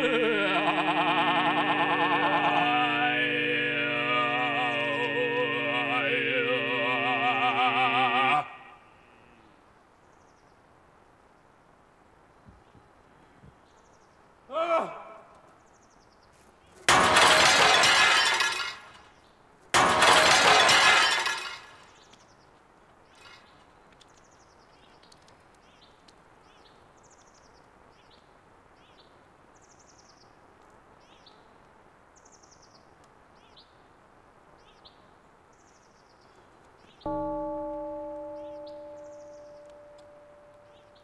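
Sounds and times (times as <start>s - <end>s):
glass shattering: 16.9s - 19.0s, 19.8s - 21.8s.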